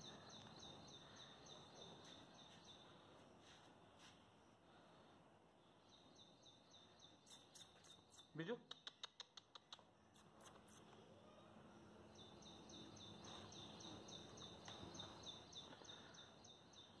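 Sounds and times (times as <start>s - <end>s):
faint high chirp: 0.0s - 3.6s, 10.1s - 17.0s.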